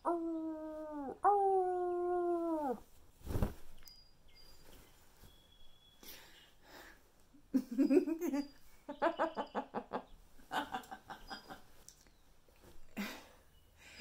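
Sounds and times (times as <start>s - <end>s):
woman laughing: 7.6s - 11.8s.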